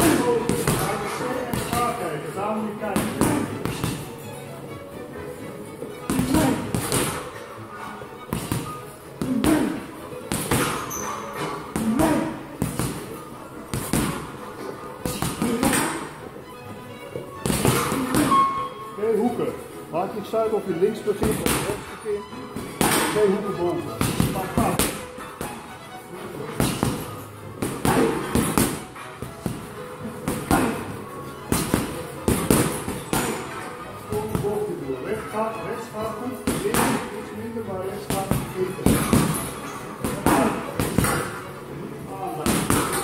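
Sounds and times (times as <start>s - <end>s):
background music: 0.0s - 43.0s
boxing glove punches thudding: 31.5s - 33.4s, 38.1s - 41.4s.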